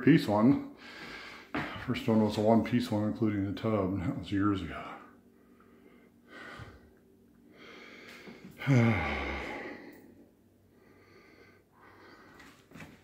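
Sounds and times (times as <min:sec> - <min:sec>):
soft breathing: 0:00.8 - 0:01.9, 0:04.8 - 0:13.0
man sighing deeply: 0:07.7 - 0:10.2.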